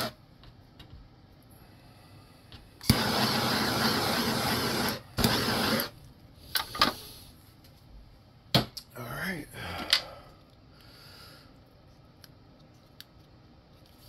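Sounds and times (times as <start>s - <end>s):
torch hissing: 2.8s - 6.0s.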